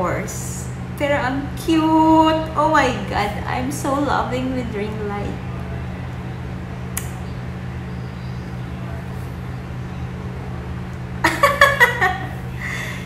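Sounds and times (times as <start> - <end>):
woman's voice: 0.0 - 5.4
low hum: 0.0 - 13.0.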